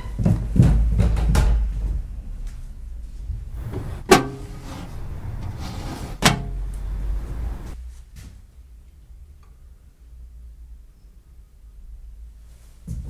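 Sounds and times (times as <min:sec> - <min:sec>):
low rumble: 0:01.8 - 0:07.8
sharp bangs of shutting: 0:03.6 - 0:07.8.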